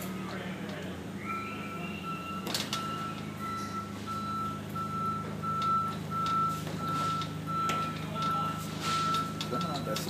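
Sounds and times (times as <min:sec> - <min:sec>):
reversing alarm beeping: 0:01.1 - 0:10.0.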